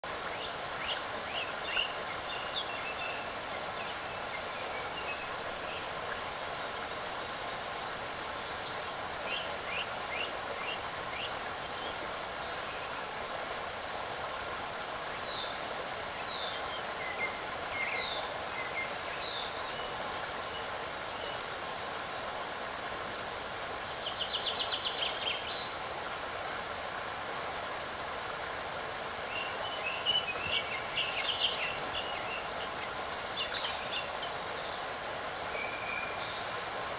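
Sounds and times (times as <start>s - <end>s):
small birds chirping: 14.2s - 25.8s, 29.3s - 34.9s.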